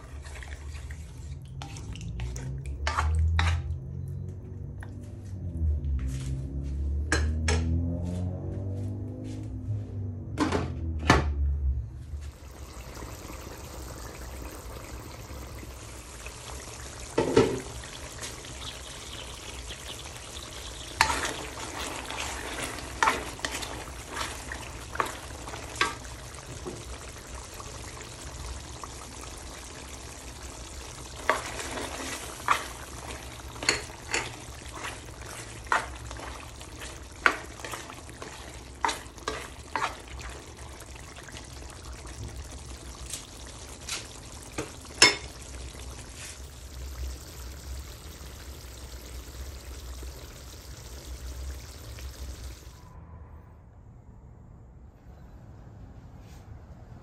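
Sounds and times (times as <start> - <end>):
food simmering and sizzling in a wok: 0.0 - 5.7, 11.7 - 53.0
spatula scraping against pan: 2.8 - 3.8, 33.6 - 40.2.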